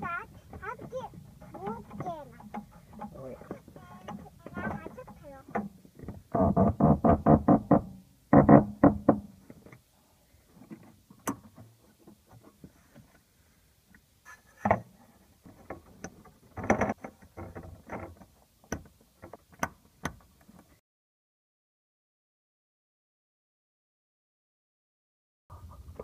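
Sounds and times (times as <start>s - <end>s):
plastic parts clicking and knocking: 15.5s - 20.7s.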